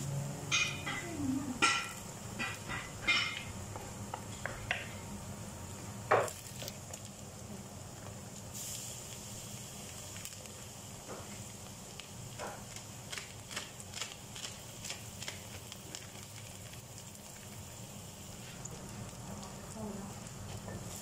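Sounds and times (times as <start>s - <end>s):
food sizzling in oil: 0.0s - 21.0s
short crackles and clicks: 11.9s - 17.3s.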